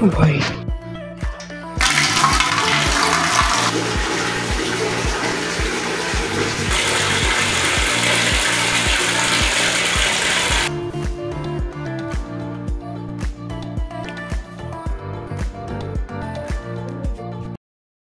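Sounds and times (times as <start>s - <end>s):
music with steady beat: 0.6s - 17.5s
water pouring into metal bucket: 1.8s - 10.7s.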